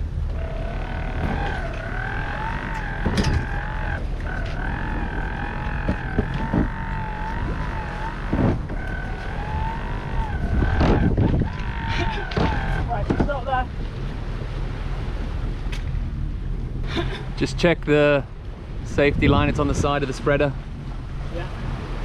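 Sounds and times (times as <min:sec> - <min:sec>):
sea noise: 0:00.0 - 0:22.0
wind: 0:00.0 - 0:22.0
wavering high whistling tone: 0:00.3 - 0:12.9.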